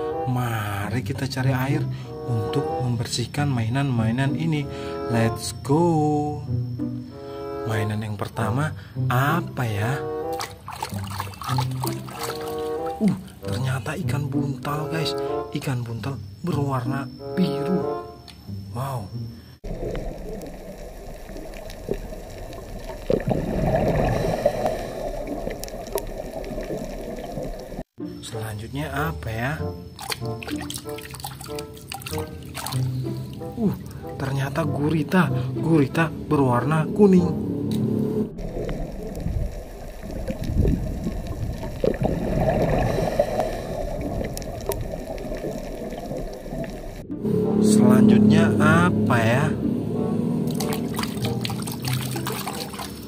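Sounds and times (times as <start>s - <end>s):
underwater breath bubbles gurgling: 19.6s - 27.8s, 38.4s - 47.0s.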